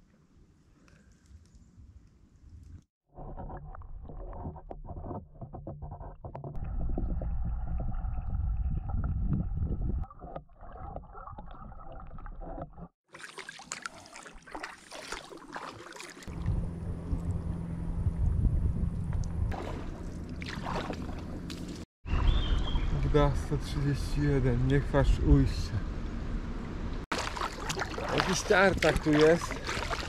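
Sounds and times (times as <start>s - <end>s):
wind rumble on microphone: 6.6s - 10.1s, 16.4s - 19.6s
bubbling: 6.6s - 16.6s, 27.1s - 30.0s
kayak paddling with splashing: 13.1s - 17.2s, 19.5s - 22.8s, 27.1s - 30.0s.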